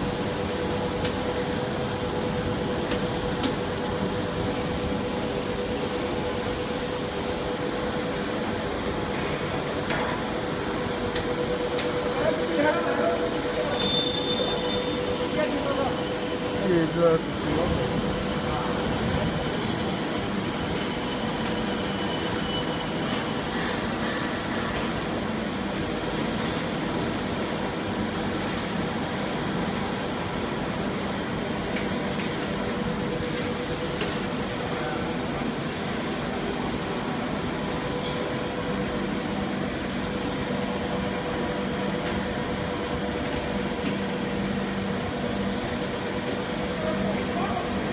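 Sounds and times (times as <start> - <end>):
constant high whine: 0.0 - 47.9
machine motor and blower drone: 0.0 - 47.9.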